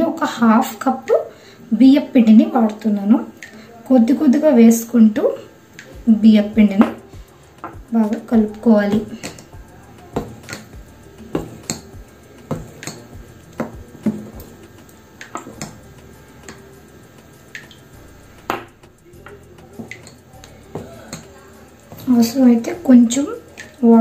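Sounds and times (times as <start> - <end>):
spoon clinking against steel bowl: 10.1 - 16.8.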